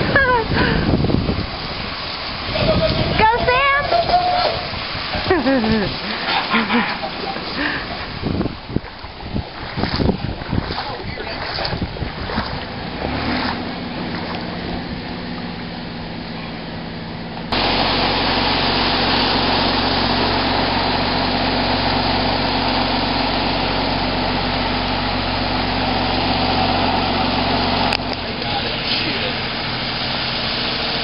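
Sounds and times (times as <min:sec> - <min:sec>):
steady rushing noise: 0:00.0 - 0:31.0
vehicle engine running: 0:05.2 - 0:08.5, 0:09.8 - 0:31.0.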